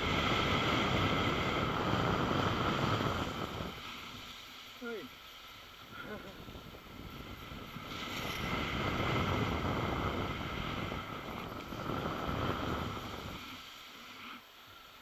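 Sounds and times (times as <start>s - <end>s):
wind buffeting microphone: 0.0s - 4.1s, 5.9s - 13.7s
skis hissing through snow: 0.0s - 15.0s.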